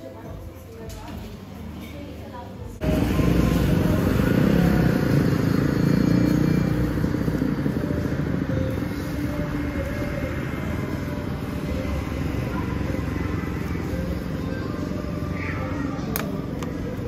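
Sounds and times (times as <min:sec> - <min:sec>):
motorbike engine running: 0:02.8 - 0:14.9.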